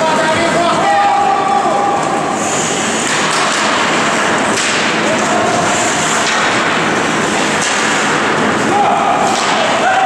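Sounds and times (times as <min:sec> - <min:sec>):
hockey sticks and puck clacking: 0:01.9 - 0:10.0
skate blades hissing on ice: 0:02.3 - 0:04.9.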